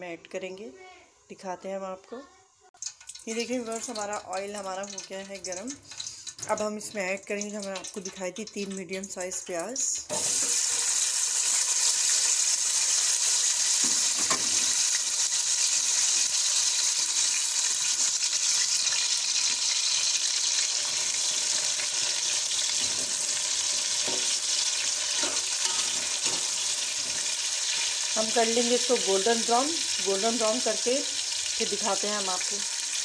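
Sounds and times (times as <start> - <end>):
onions sizzling in hot oil: 2.4 - 33.0.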